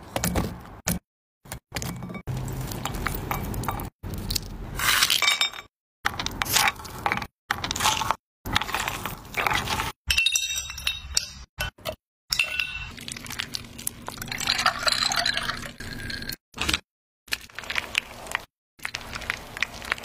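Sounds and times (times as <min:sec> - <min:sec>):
ice cubes and glassware clinking: 0:05.0 - 0:05.7, 0:06.6 - 0:13.5, 0:14.2 - 0:16.4.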